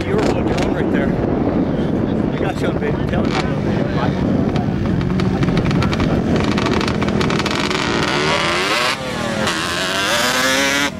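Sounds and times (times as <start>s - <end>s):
vehicle engine revving: 3.0s - 10.9s.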